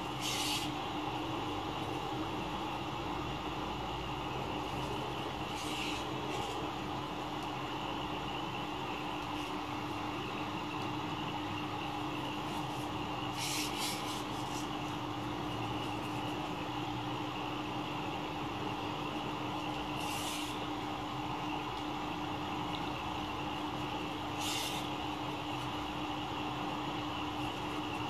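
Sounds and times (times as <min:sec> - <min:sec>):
soft hissing rustles: 0:00.0 - 0:01.0, 0:04.6 - 0:06.8, 0:12.2 - 0:15.0, 0:19.8 - 0:20.8, 0:23.4 - 0:25.8
background hum and hiss: 0:00.0 - 0:28.0.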